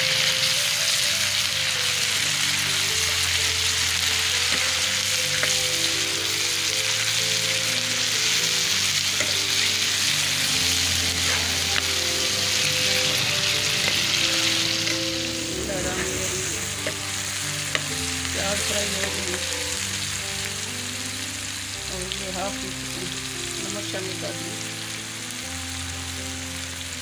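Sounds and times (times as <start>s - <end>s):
vegetables sizzling in hot oil: 0.0s - 27.0s
metal spoon scraping pan: 10.8s - 19.3s.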